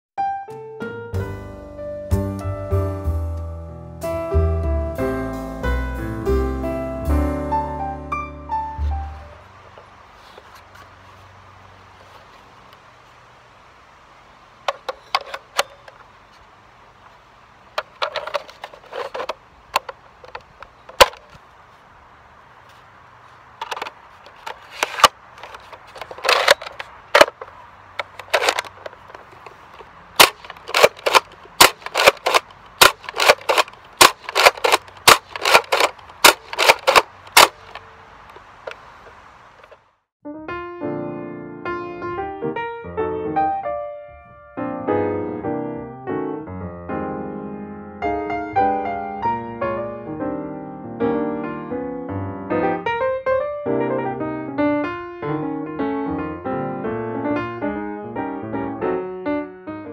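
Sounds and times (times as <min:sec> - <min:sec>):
plastic clacks of priming slide: 0:14.6 - 0:16.1, 0:17.8 - 0:21.4, 0:23.6 - 0:39.8.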